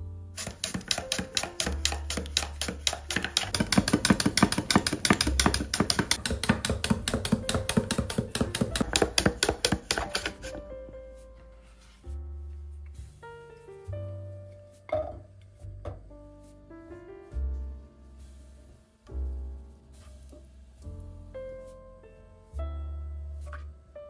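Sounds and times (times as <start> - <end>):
background music: 0.0 - 24.0
knife chopping on cutting board: 0.4 - 10.6.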